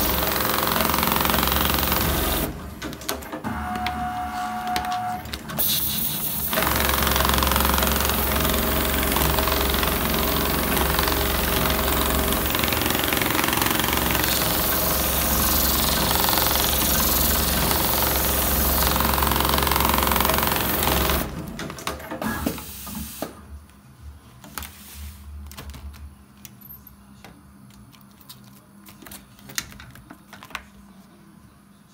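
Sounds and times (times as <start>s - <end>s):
sewing machine stitching: 0.0s - 22.6s.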